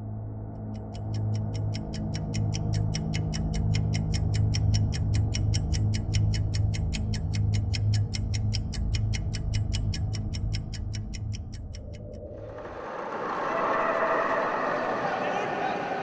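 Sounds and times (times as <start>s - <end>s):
rapid electronic ticking: 0.6s - 12.4s.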